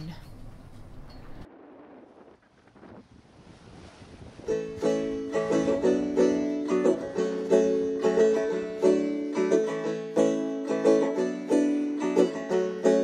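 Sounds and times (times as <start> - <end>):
plucked string instrumental music: 4.5 - 13.0.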